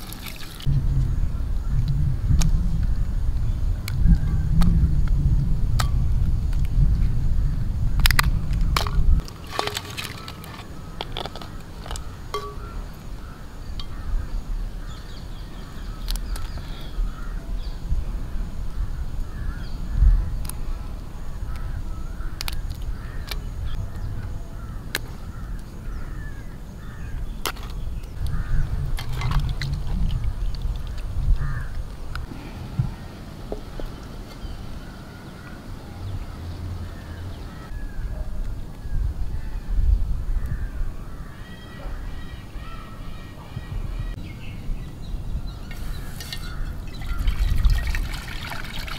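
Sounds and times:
water sloshing: 0:00.0 - 0:00.7, 0:08.8 - 0:13.0, 0:45.7 - 0:48.9
low rumble: 0:00.7 - 0:09.2
distant crows calling: 0:09.2 - 0:29.6, 0:30.3 - 0:44.3, 0:45.3 - 0:48.9.

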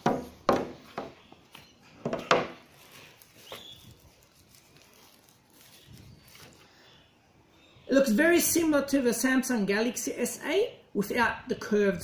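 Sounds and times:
sharp knocks: 0:00.0 - 0:01.2.

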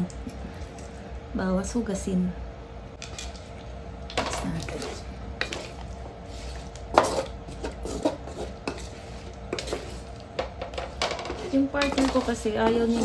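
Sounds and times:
wooden spatula scraping a wok: 0:04.4 - 0:13.0.

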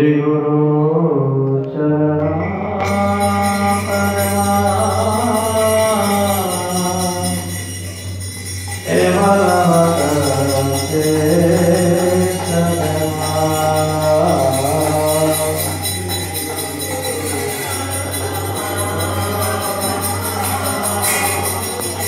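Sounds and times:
person singing long notes: 0:00.0 - 0:07.9
steady drone: 0:02.3 - 0:22.0
jingling hand cymbals: 0:02.8 - 0:22.0.

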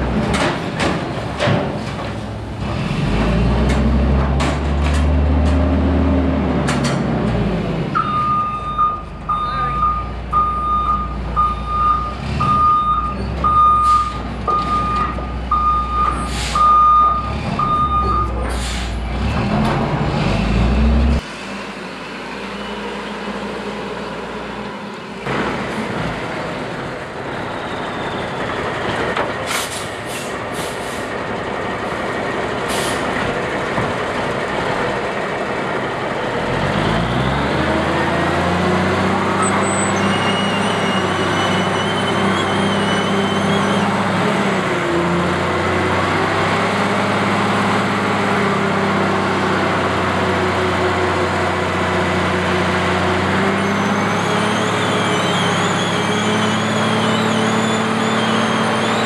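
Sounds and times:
diesel truck engine revving: 0:02.2 - 0:59.0
reverse alarm beeps: 0:08.0 - 0:18.4.

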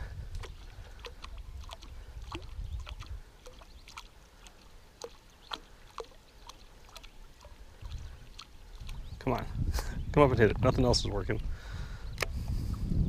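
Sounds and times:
water splashing and lapping: 0:00.0 - 0:10.3.

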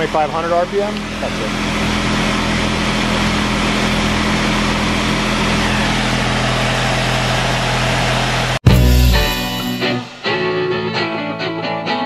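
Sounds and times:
lathe spindle humming and whirring: 0:01.0 - 0:08.6.

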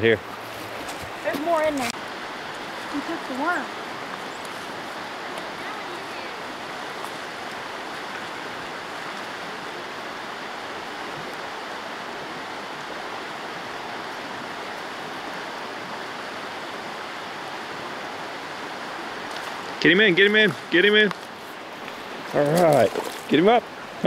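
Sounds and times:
mountain stream rushing: 0:00.0 - 0:24.0.

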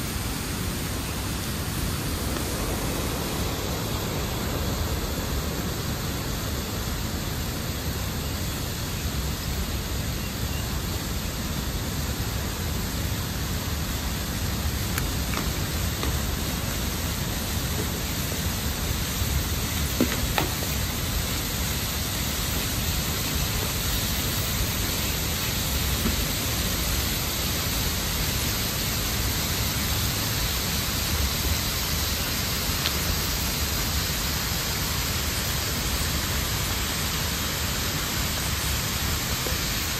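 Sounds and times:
water rushing through dam gate: 0:10.8 - 0:39.9
faint knock: 0:20.0 - 0:20.8.

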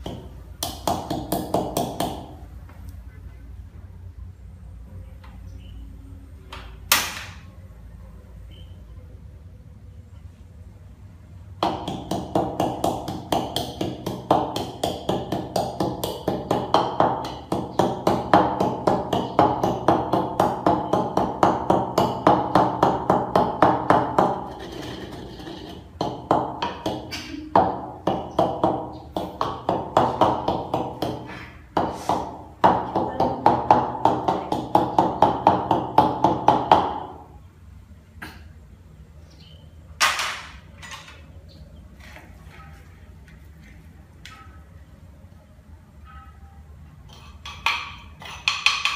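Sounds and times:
pestle pounding in a mortar: 0:11.6 - 0:37.2, 0:47.4 - 0:48.9.

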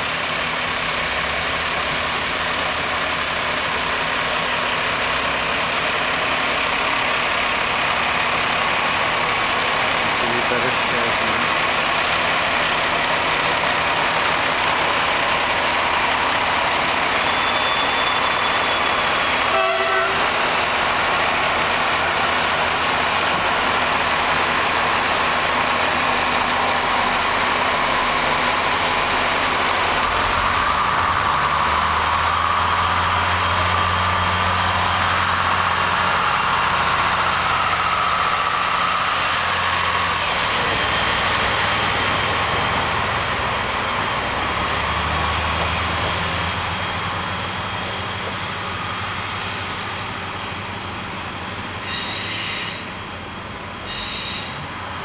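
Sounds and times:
train diesel engine running: 0:00.0 - 0:55.0.

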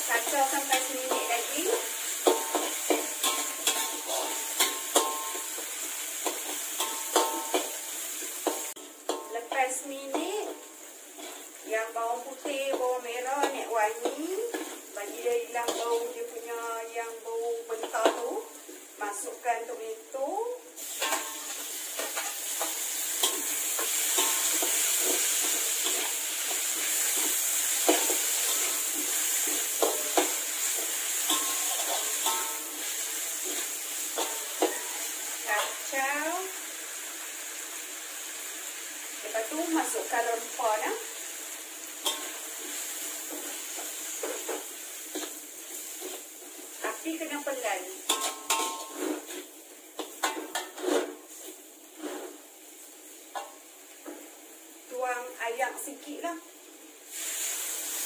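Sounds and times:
metal spatula scraping a wok: 0:00.0 - 0:11.7, 0:12.4 - 0:16.4, 0:20.8 - 0:36.0, 0:42.0 - 0:47.0, 0:48.0 - 0:52.4
oil sizzling: 0:00.0 - 0:58.0.

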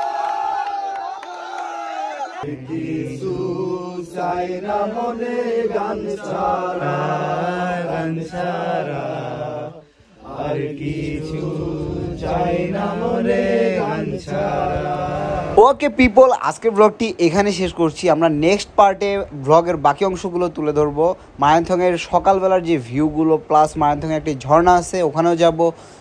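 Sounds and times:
group singing folk song: 0:02.4 - 0:15.7.

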